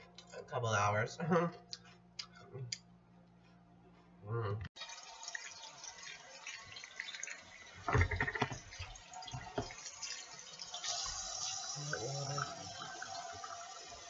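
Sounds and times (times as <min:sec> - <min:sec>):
tap water running into sink: 0:04.8 - 0:14.0.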